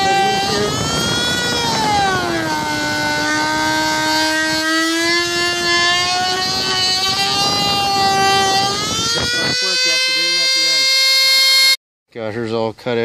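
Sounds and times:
rotary tool whining: 0.0 - 11.8.

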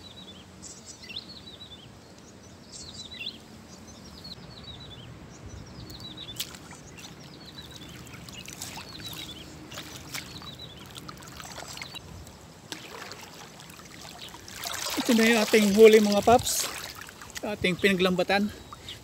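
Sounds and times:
bird chirping: 0.0 - 19.0
water splashing and dripping: 6.4 - 17.6.

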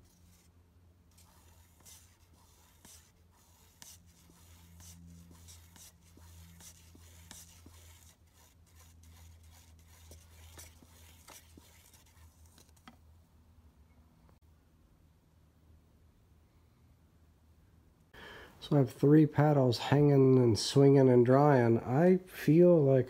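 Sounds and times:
stick stirring in metal can: 1.1 - 12.9.

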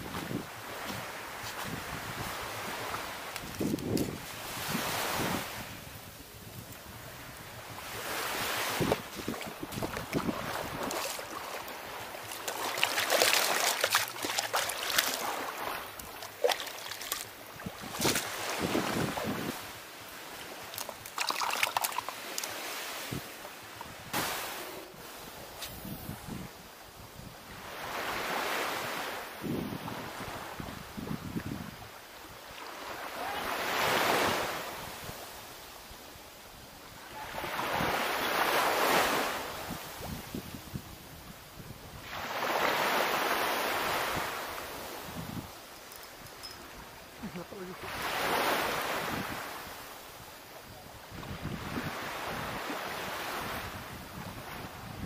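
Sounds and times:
wind on microphone: 0.0 - 19.8, 23.0 - 28.1, 28.8 - 31.9, 38.8 - 42.7, 43.8 - 55.0
small waves washing on shore: 0.0 - 36.0, 36.6 - 55.0
seawater lapping: 7.9 - 19.4, 20.2 - 23.9
object splashing through water: 12.3 - 15.4, 16.2 - 17.2, 20.7 - 22.5.

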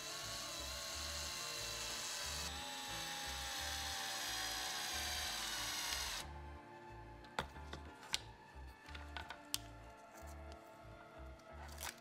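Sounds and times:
winch motor whining: 0.0 - 6.2.

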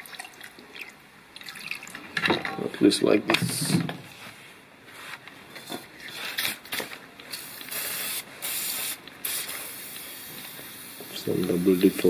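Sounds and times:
aerosol can spraying: 7.3 - 12.0.

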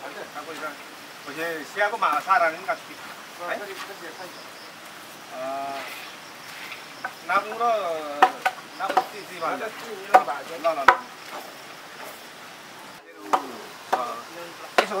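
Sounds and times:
meat sizzling in a wok: 0.0 - 15.0.

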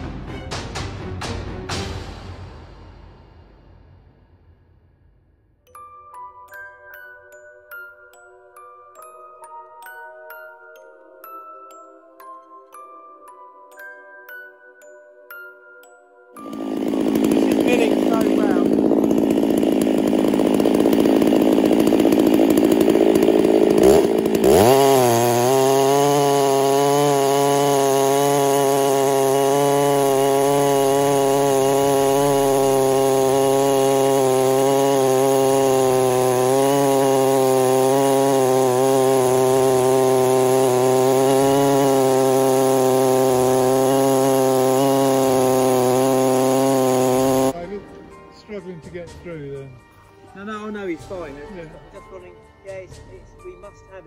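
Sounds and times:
chainsaw ripping through log: 16.4 - 47.6.

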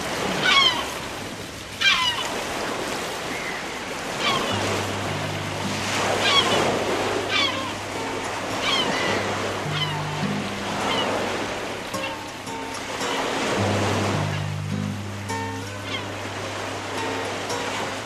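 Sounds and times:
gulls calling: 0.0 - 18.0
sea surf: 0.0 - 18.0
low held music notes: 4.5 - 18.0.

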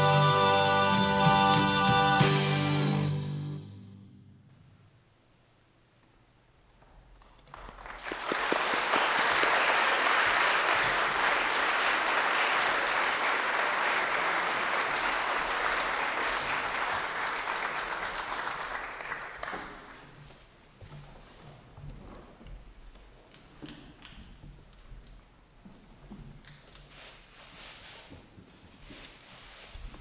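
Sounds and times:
audience applauding: 7.3 - 20.2.

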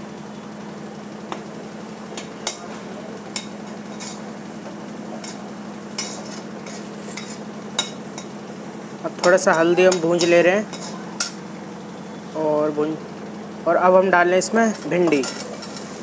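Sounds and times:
soft frying sizzle: 0.0 - 16.0
steady low hum: 0.0 - 16.0
ladle scraping and clinking pan: 3.4 - 4.3, 5.2 - 8.3, 9.2 - 11.4, 14.7 - 16.0.

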